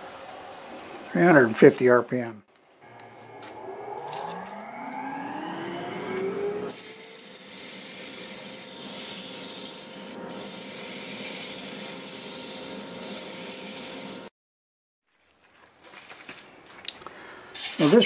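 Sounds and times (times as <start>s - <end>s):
wood lathe motor whine: 2.8s - 14.3s
sandpaper hissing on spinning wood: 6.7s - 14.3s.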